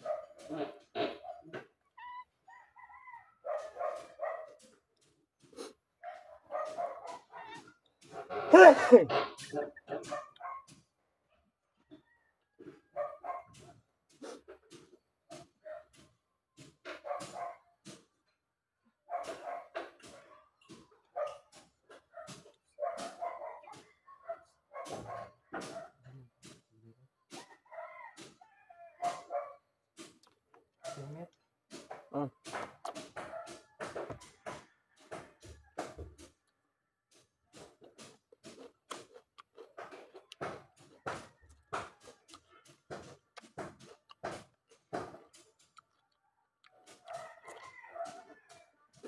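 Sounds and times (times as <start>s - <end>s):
dog barking: 0.0s - 1.6s, 3.4s - 4.7s, 6.0s - 9.3s, 9.9s - 10.8s, 12.9s - 14.4s, 15.6s - 16.0s, 16.9s - 17.7s, 19.1s - 26.0s, 28.7s - 29.7s, 30.8s - 31.2s, 33.2s - 34.6s, 47.0s - 48.6s.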